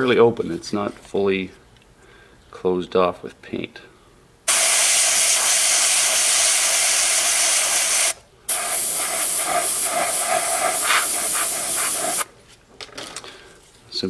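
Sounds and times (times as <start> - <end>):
airbrush spraying: 4.5 - 12.3.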